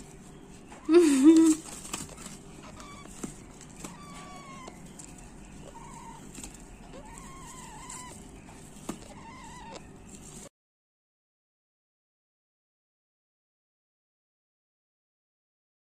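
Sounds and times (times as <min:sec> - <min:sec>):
parakeet chicks calling softly: 0:00.0 - 0:10.5.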